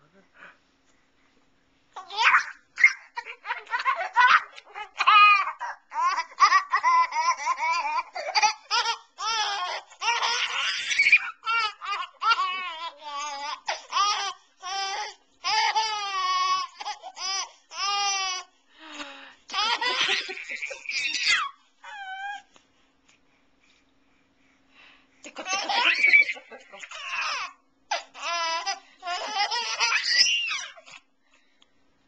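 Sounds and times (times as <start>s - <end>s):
baby laughing: 2.0s - 18.4s, 19.5s - 22.4s, 25.3s - 31.0s.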